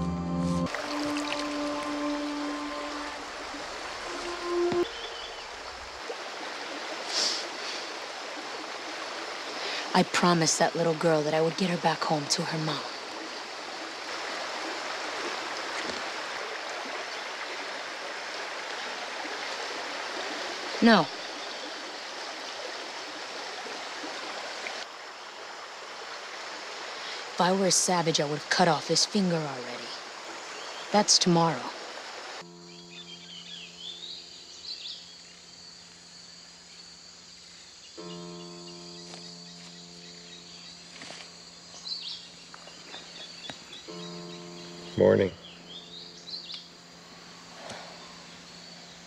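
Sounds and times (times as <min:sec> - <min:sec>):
held low note: 0:00.0 - 0:05.9
jungle ambience hiss: 0:00.0 - 0:49.0
high insect buzz: 0:00.6 - 0:10.5, 0:29.8 - 0:49.0
bird chirps: 0:00.8 - 0:05.9, 0:32.5 - 0:46.9.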